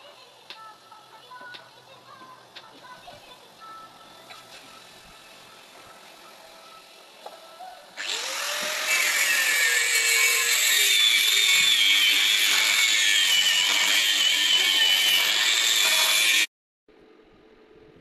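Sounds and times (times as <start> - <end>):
angle grinder spinning up: 8.0 - 16.5
grinder grinding metal: 8.0 - 16.5.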